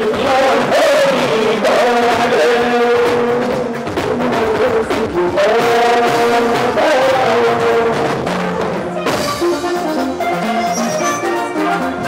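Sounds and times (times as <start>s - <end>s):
man singing into a microphone: 0.0s - 9.1s
drum kit: 0.0s - 12.0s.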